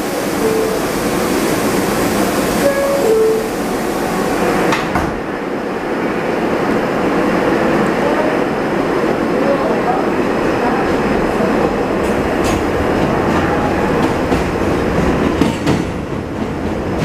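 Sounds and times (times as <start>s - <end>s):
subway train rumble and hiss: 0.0s - 17.0s
sharp train clunk: 12.0s - 17.0s.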